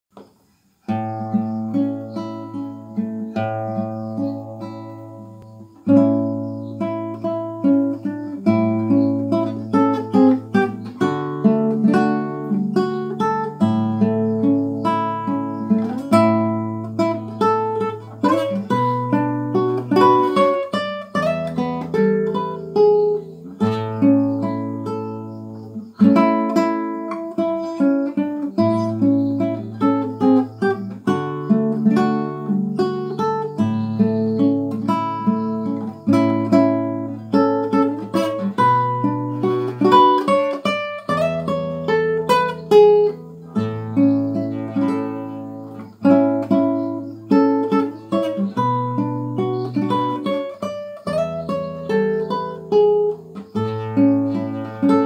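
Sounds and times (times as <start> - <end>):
fingerstyle nylon-string guitar hymn: 0.1 - 55.0.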